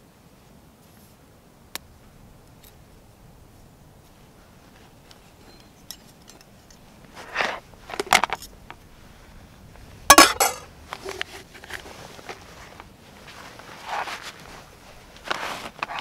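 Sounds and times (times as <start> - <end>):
spork and cook pots clinking: 10.1 - 10.6.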